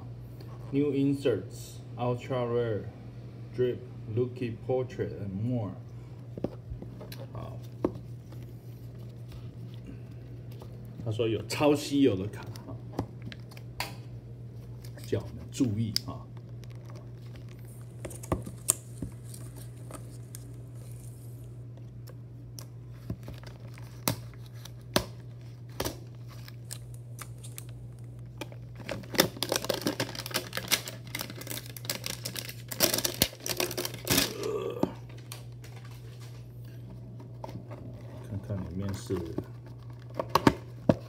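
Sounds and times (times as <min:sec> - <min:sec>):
steady low hum: 0:00.0 - 0:41.0
plastic wrap crinkling and tearing: 0:14.6 - 0:21.5, 0:22.9 - 0:36.4.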